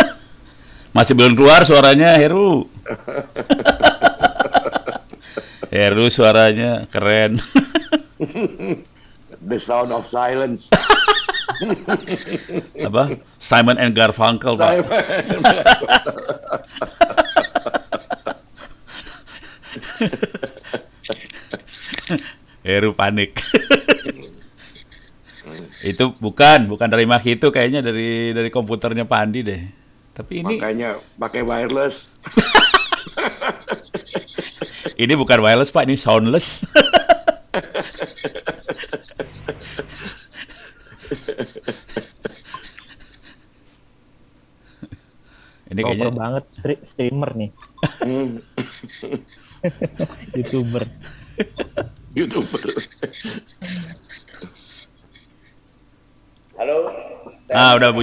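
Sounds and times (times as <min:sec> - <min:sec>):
breathy laughter: 0:02.8 - 0:05.7, 0:10.8 - 0:12.8, 0:14.7 - 0:22.4, 0:23.4 - 0:26.0, 0:32.3 - 0:35.0, 0:36.6 - 0:43.5, 0:47.6 - 0:55.6
murmured voices: 0:39.2 - 0:40.2, 0:49.0 - 0:54.6.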